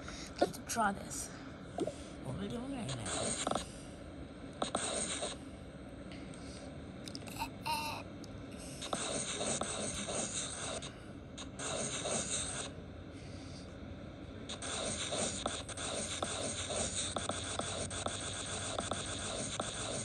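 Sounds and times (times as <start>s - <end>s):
scratchy drawing strokes: 2.9s - 3.7s, 4.6s - 5.4s, 8.8s - 12.7s, 14.5s - 20.0s.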